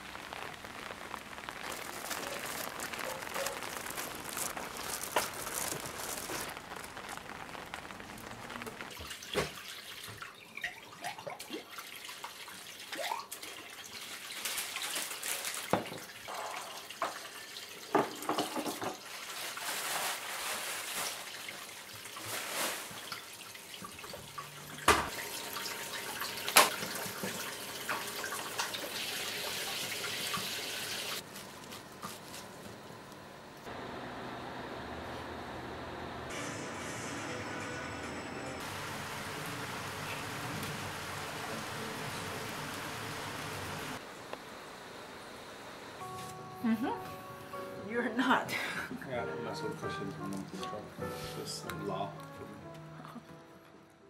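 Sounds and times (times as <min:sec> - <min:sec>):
tap water running into sink: 0:08.9 - 0:14.9, 0:15.6 - 0:19.1, 0:22.9 - 0:31.2
dishes clinking and knocking: 0:17.9 - 0:19.0.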